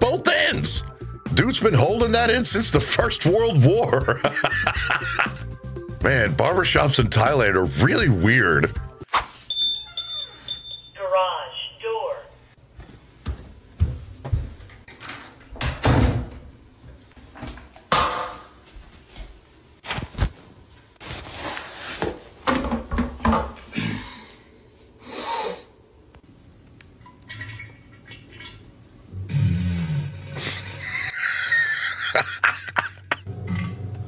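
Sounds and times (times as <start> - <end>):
rustling: 18.5 - 22.4
knocks and thumps: 22.4 - 23.6.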